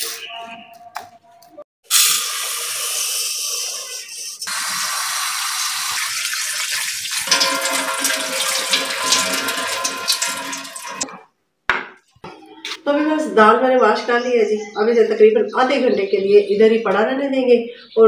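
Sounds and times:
rinse water tipped out: 4.5s - 11.2s
tap water running into a bowl: 4.5s - 11.2s.

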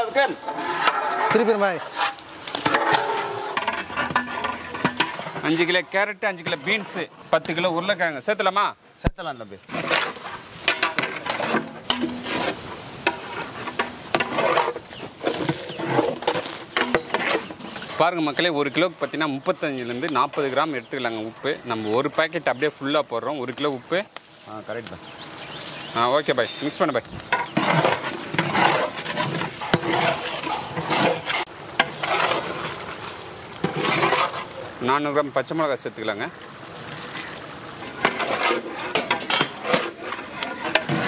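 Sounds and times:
vegetables sizzling and scraping: 0.0s - 8.3s, 9.5s - 41.0s
ladle stirring thick curry: 0.4s - 7.6s, 9.6s - 23.9s, 26.7s - 35.4s, 36.0s - 41.0s
ladle clanking on pot: 10.6s - 12.4s.

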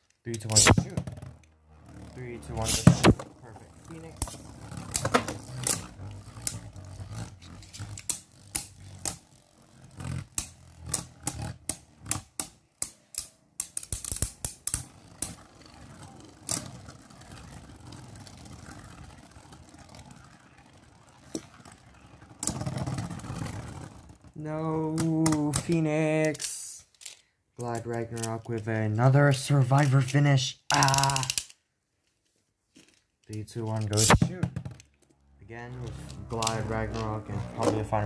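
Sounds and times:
spinning tops whirring: 0.3s - 26.7s, 33.7s - 34.9s, 35.5s - 38.0s
spinning tops clacking together: 4.2s - 20.3s, 30.7s - 31.6s.

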